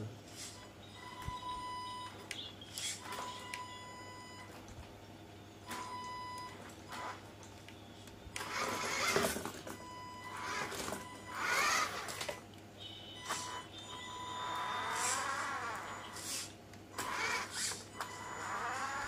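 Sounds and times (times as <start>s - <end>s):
electric motor and gearbox whine: 0.0s - 12.5s, 13.1s - 19.0s.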